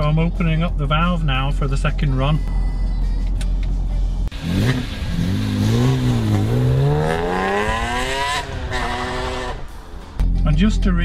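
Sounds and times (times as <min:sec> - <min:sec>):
car engine accelerating: 0:04.2 - 0:10.2.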